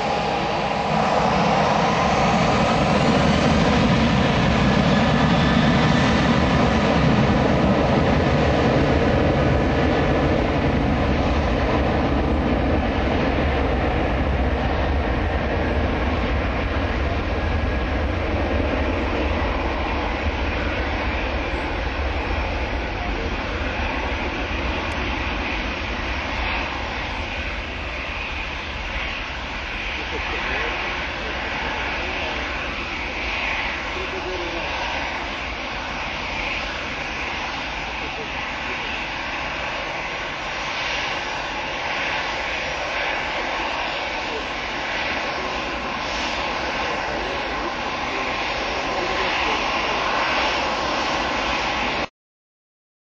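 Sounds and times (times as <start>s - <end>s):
jet engines running: 0.0s - 52.1s.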